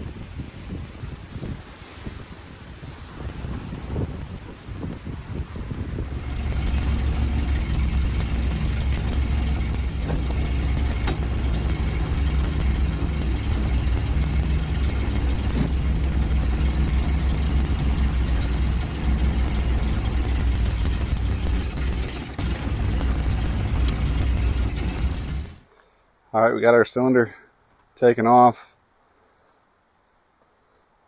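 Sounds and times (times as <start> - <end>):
truck engine idling: 6.0 - 25.7.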